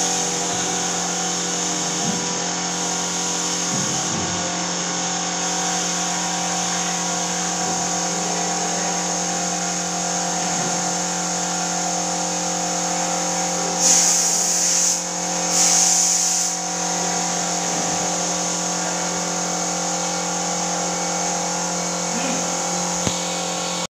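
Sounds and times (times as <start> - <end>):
spray gun hissing: 0.0 - 4.0, 4.7 - 23.8
air compressor humming: 0.0 - 23.9.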